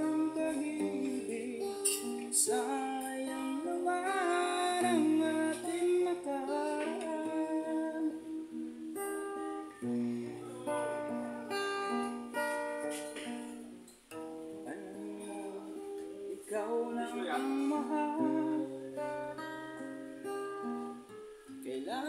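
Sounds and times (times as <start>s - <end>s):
man singing: 0.0s - 8.6s, 14.6s - 20.0s, 21.5s - 22.0s
acoustic guitar: 0.0s - 22.0s.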